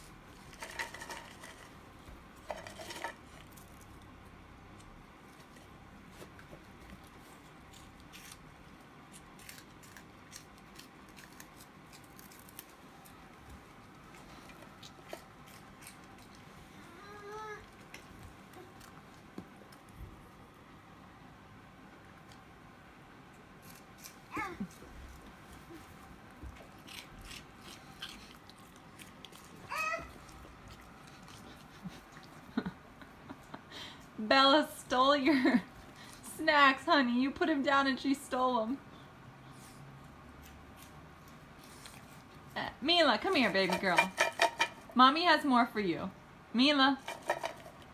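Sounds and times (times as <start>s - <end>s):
snack puffs crunching: 6.9s - 16.5s, 23.6s - 32.6s
toddler squealing: 29.7s - 30.1s.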